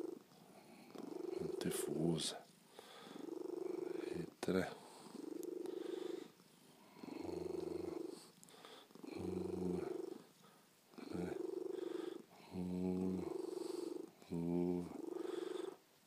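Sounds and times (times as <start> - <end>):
cat purring: 0.0 - 16.0.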